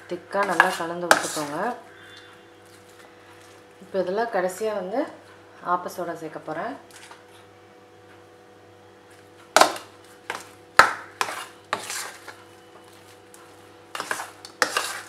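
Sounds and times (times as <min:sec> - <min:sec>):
spoon clinking and scraping bowl: 0:00.4 - 0:01.6, 0:11.2 - 0:13.0, 0:13.9 - 0:15.0.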